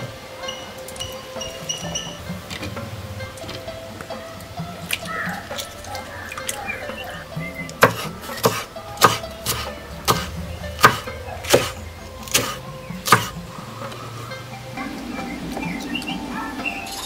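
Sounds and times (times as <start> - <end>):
background music: 0.0 - 17.0
knife chopping on wooden board: 7.8 - 13.3.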